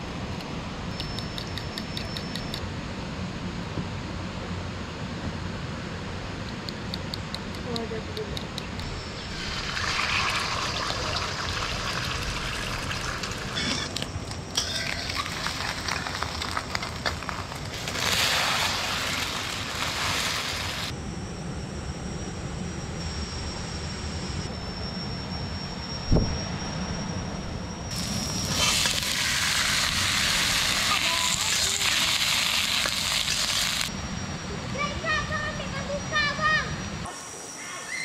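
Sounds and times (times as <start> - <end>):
thin high tone: 8.8 - 17.1, 18.5 - 38.0.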